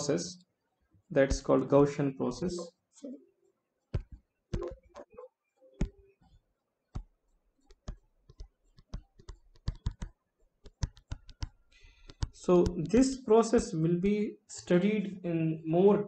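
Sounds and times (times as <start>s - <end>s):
stylus tapping on tablet screen: 3.8s - 13.7s.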